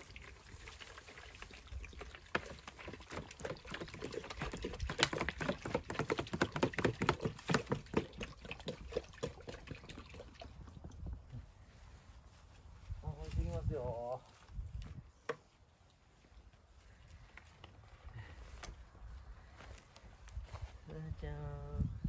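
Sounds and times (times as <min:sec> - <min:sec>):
water glugging from bottle: 0:00.0 - 0:11.1.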